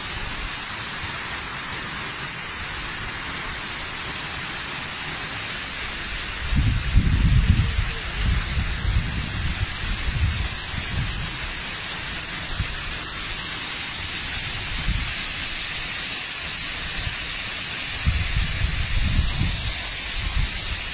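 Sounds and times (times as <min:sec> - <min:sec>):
water cascading down a stream: 0:00.0 - 0:20.9
wind buffeting microphone: 0:06.4 - 0:11.4, 0:17.9 - 0:20.9.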